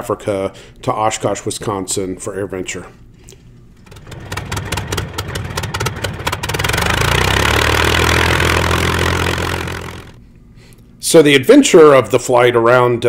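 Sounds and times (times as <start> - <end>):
aircraft engine starting and running: 3.8 - 10.2.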